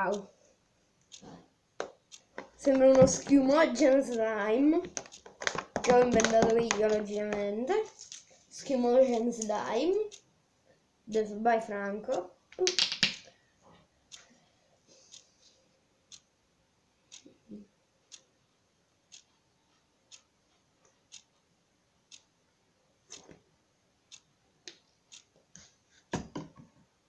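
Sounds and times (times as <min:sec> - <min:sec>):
faint ticks: 0:15.1 - 0:16.3, 0:18.1 - 0:18.3, 0:24.1 - 0:25.7.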